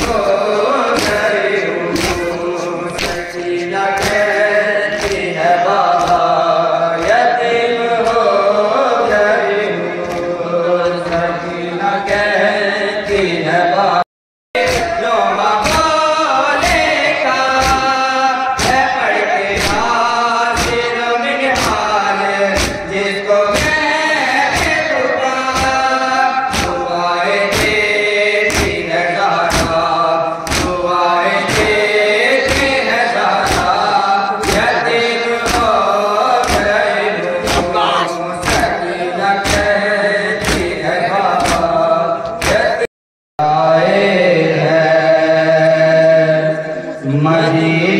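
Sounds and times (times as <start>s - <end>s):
men chanting a lament: 0.0s - 47.9s
chest-beating: 37.4s - 38.2s.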